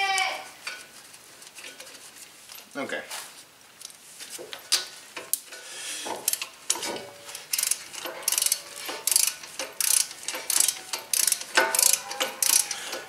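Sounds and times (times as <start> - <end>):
ratchet wrench clicking: 6.2 - 6.8, 7.4 - 13.0.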